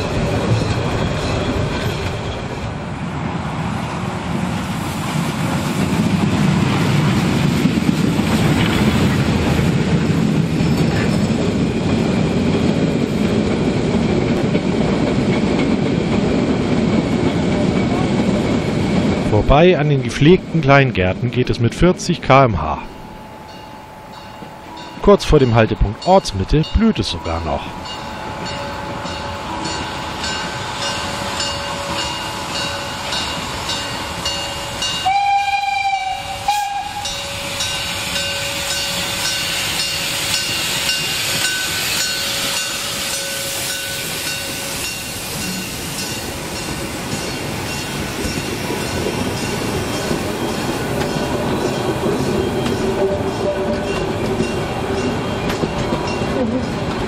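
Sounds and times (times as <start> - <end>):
steam exhaust beat: 27.7 - 57.0
steam locomotive whistle: 28.7 - 45.7, 52.3 - 54.1.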